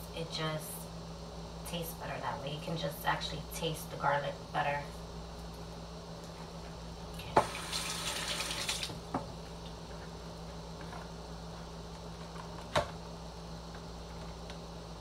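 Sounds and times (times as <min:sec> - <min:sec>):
running water from tap: 0:07.4 - 0:09.0.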